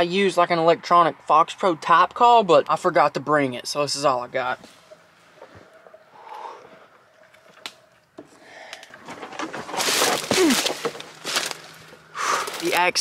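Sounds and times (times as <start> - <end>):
twigs cracking and snapping: 7.3 - 7.9, 8.6 - 13.0
footsteps crunching through dry leaves: 9.6 - 12.9.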